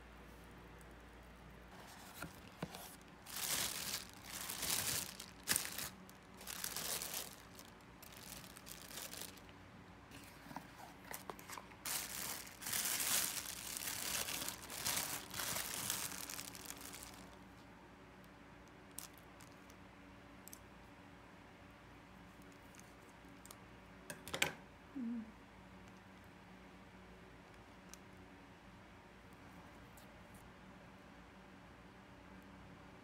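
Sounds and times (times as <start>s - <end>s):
plastic film crinkling and tearing: 1.8s - 9.5s, 11.2s - 17.5s.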